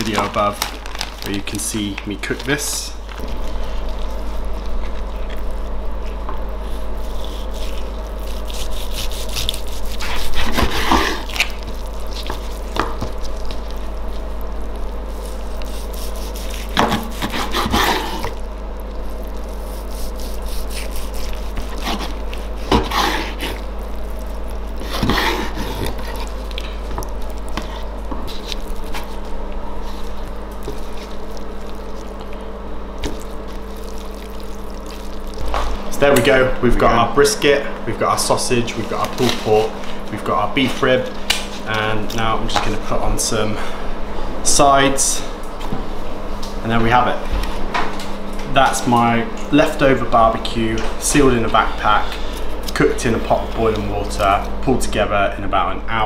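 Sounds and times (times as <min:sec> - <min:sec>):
steady background hum: 0:00.0 - 0:56.0
knife slicing meat: 0:06.6 - 0:13.4, 0:15.1 - 0:18.4, 0:19.1 - 0:23.7, 0:24.7 - 0:26.6.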